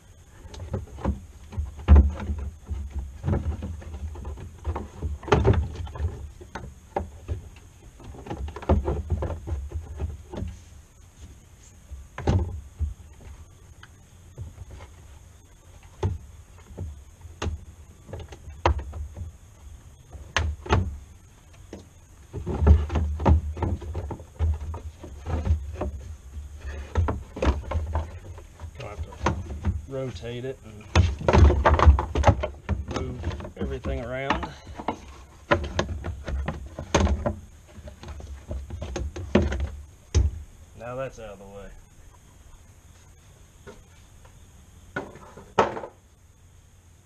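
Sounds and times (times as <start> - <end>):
thumps: 0.0 - 41.9, 42.5 - 46.4
plastic fan shroud knocking and scraping: 0.4 - 13.4, 20.0 - 40.4.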